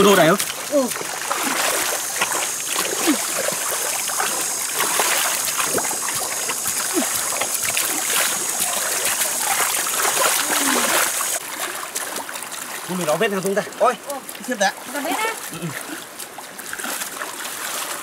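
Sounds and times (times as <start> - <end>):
hoe scraping wet mud: 0.0 - 11.4
muddy water sloshing and splashing: 0.0 - 18.0
water trickling: 0.0 - 18.0
small wet clicks: 0.3 - 11.4.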